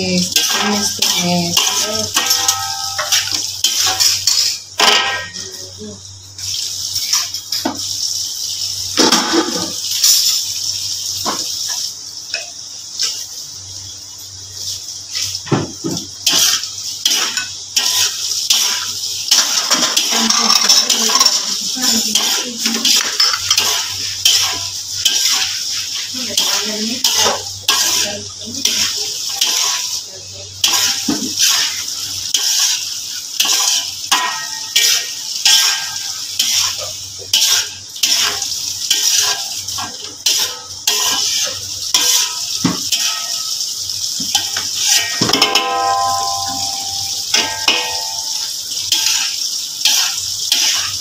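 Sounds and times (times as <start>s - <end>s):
frying hiss: 0.0s - 51.0s
metal spatula scraping wok: 0.1s - 5.4s, 16.2s - 30.0s, 30.6s - 43.7s, 44.3s - 51.0s.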